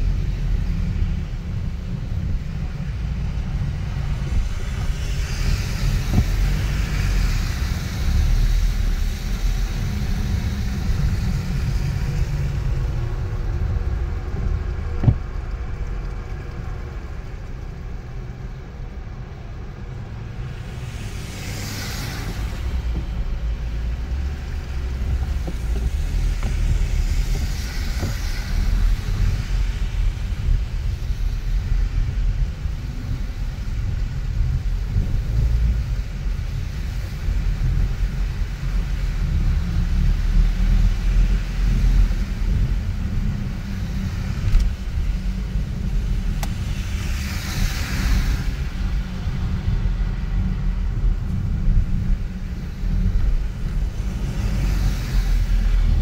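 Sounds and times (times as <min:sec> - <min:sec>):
car engine and road rumble: 0:00.0 - 0:56.0.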